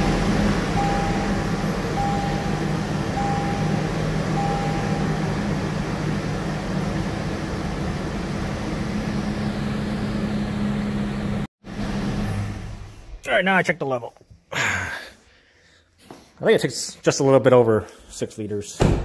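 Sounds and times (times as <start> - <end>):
dashboard warning chime beeping: 0.0 - 5.5
car engine idling: 0.0 - 13.2.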